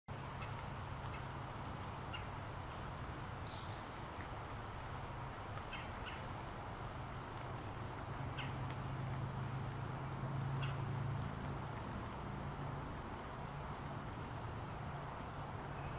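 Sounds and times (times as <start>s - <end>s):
water pattering on fabric umbrella: 0.1s - 15.9s
bird chirps: 3.4s - 4.0s.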